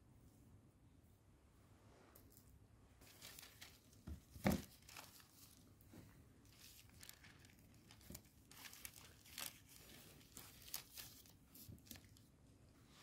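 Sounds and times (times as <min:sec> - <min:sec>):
plastic film crinkling: 0:03.0 - 0:05.7, 0:06.4 - 0:12.3.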